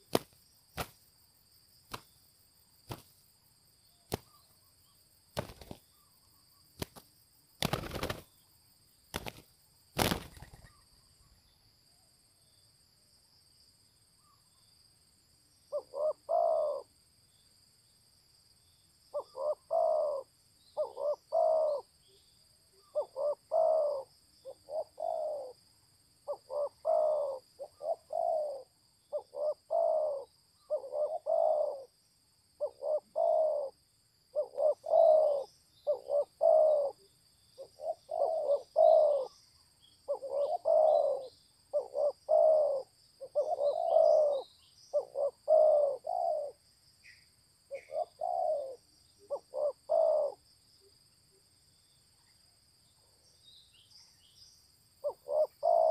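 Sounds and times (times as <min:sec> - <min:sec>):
dove cooing: 0:15.7 - 0:16.9, 0:19.2 - 0:21.9, 0:22.8 - 0:25.6, 0:26.3 - 0:31.9, 0:32.6 - 0:39.4, 0:40.1 - 0:46.6, 0:47.7 - 0:50.4, 0:55.0 - 0:55.9
birds chirping: 0:37.6 - 0:50.3.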